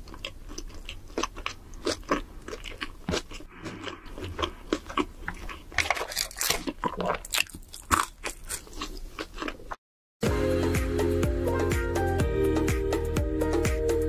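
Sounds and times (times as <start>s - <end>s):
chewing crunchy fried food: 0.0s - 9.8s
background music: 10.2s - 14.0s.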